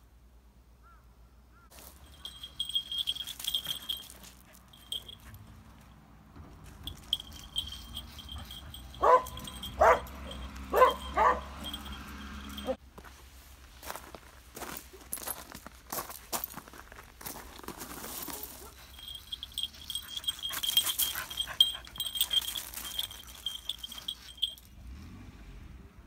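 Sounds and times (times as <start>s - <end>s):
dog paws crunching on gravel: 1.7s - 5.4s, 6.6s - 24.6s
dog collar jingling: 1.8s - 5.9s, 6.6s - 12.8s, 17.7s - 24.8s
dog yipping: 7.5s - 12.8s.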